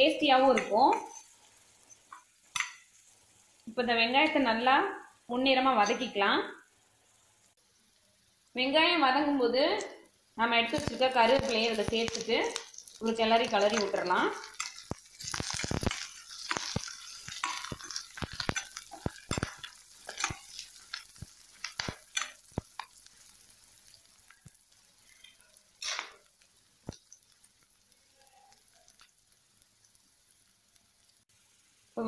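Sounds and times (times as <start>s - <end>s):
food sizzling in oil: 0.0s - 32.0s
metal spatula scraping a pan: 12.8s - 22.8s, 25.0s - 26.3s.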